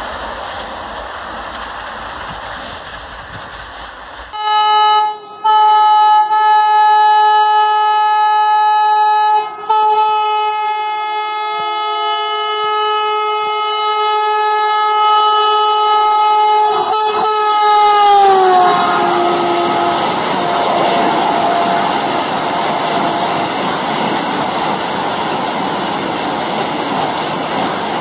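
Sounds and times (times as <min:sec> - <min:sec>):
train rumble: 0:00.0 - 0:06.4, 0:07.0 - 0:28.0
train horn blasts: 0:04.3 - 0:23.8.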